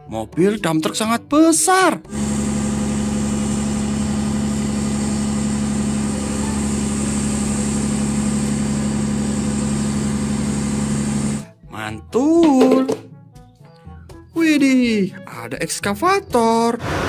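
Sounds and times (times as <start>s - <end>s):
diesel truck engine droning: 2.1s - 11.5s.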